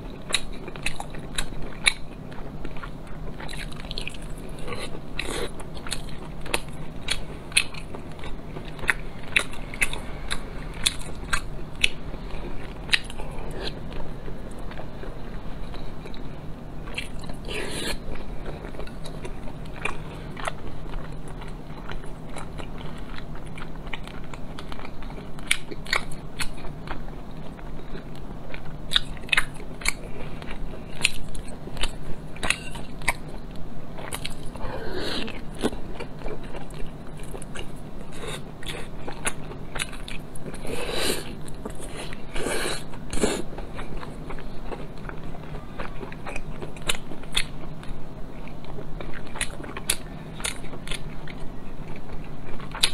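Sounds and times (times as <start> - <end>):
chewing and biting: 0.0 - 52.9.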